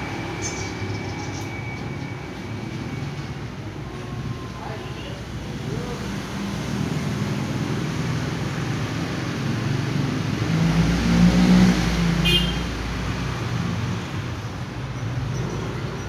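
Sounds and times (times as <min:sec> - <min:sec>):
vehicle engine passing: 0:05.5 - 0:16.0.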